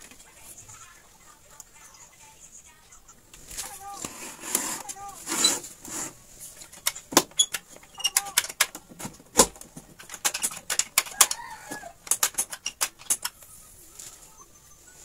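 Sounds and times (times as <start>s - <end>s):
plastic cabinet clicks and knocks: 6.8s - 13.3s.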